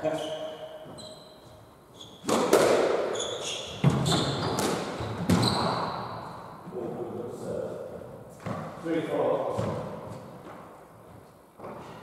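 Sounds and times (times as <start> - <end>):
shoes squeaking on wooden floor: 0.2 - 2.3, 3.1 - 6.1
squash ball hits echoing: 2.2 - 6.2.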